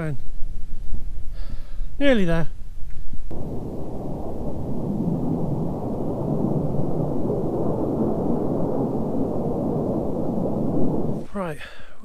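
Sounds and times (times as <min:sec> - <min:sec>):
distant jet flying low: 0:03.3 - 0:11.3.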